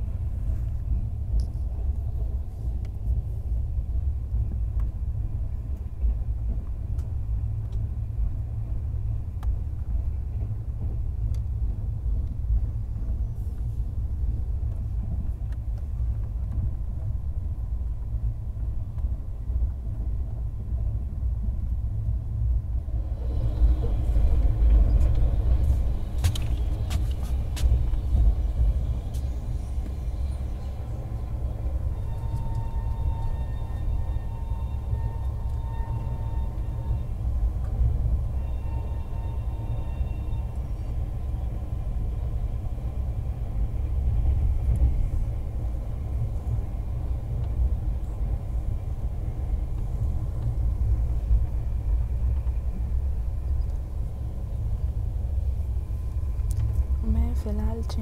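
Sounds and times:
train rumble inside coach: 0.0s - 58.0s
sharp train clacks: 23.0s - 41.2s.

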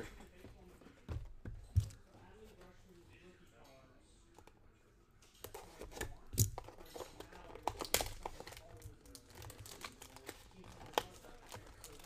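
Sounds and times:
cardboard crinkling and tearing: 6.7s - 12.0s.

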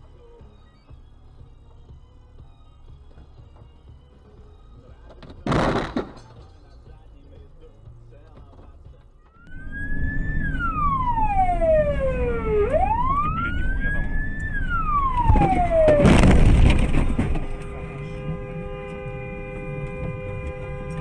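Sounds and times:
car collision crash: 5.2s - 6.4s, 15.1s - 17.6s
siren wailing: 9.4s - 18.3s.

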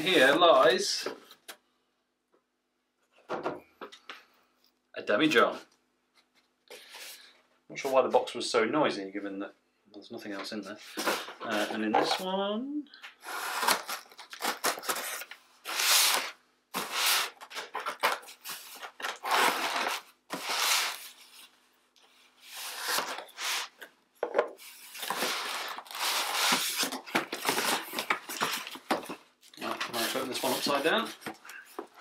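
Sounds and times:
knife cutting packing tape: 13.3s - 21.1s, 22.6s - 23.8s, 24.8s - 28.9s.

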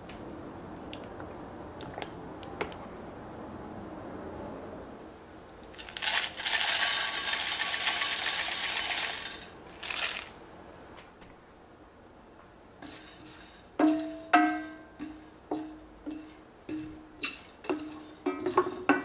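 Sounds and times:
seeds pattering into a pan: 5.7s - 10.3s.

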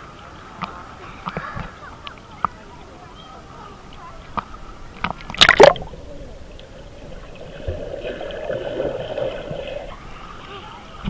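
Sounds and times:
water lapping and dripping: 0.0s - 11.0s
loud splash: 5.2s - 6.0s.

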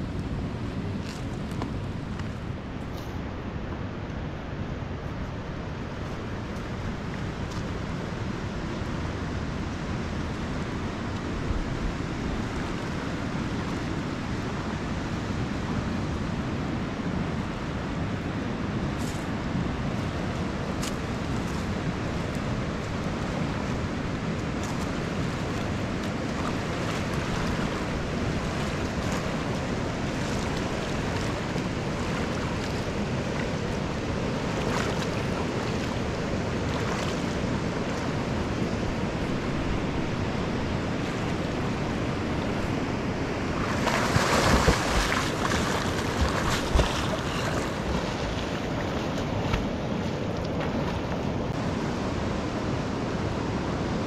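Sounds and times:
steady rushing noise: 18.6s - 54.0s.

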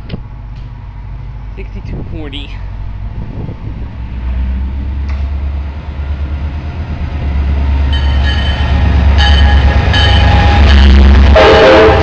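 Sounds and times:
diesel locomotive engine rumble: 0.0s - 12.0s
locomotive horn blasts: 9.2s - 12.0s.

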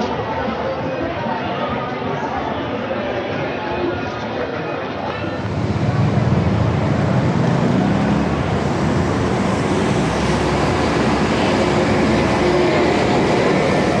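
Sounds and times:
heavy city street traffic: 0.0s - 14.0s
buses and cars passing: 4.8s - 14.0s.

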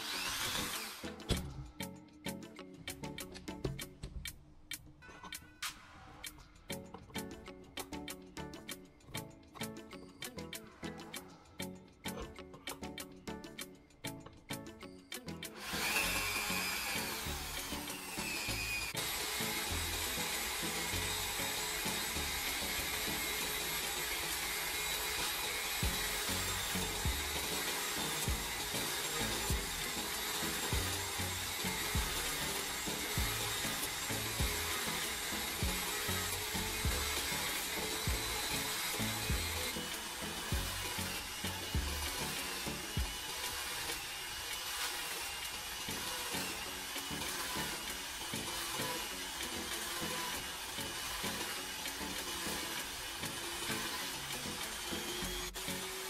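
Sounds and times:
power tool motor whining: 0.0s - 1.4s, 15.5s - 56.0s.

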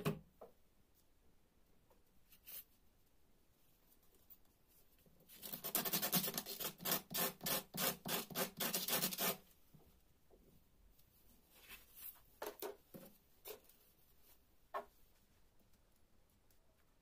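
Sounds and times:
sandpaper rasping: 5.4s - 9.4s.

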